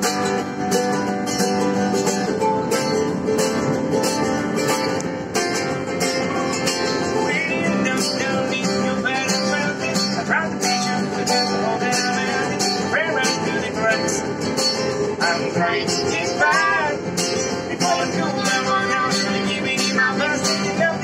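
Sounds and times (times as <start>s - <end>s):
small stringed instrument strummed: 0.0s - 21.0s
strummed acoustic guitar: 0.0s - 21.0s
person singing: 15.2s - 21.0s.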